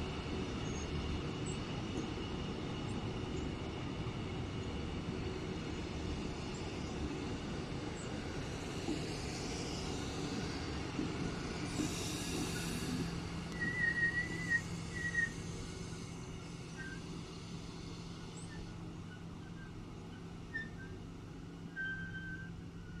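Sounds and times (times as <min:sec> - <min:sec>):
train coaches rolling on rails: 0:00.0 - 0:23.0.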